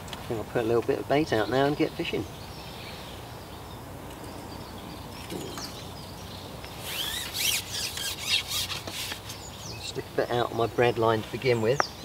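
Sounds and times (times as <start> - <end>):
outdoor background noise: 0.0 - 12.0
small bird chirping and trilling: 1.4 - 10.0.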